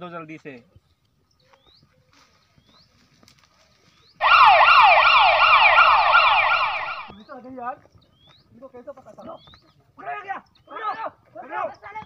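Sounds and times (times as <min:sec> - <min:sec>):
faint bird chirps: 0:00.7 - 0:03.1
police siren wailing: 0:04.2 - 0:07.2.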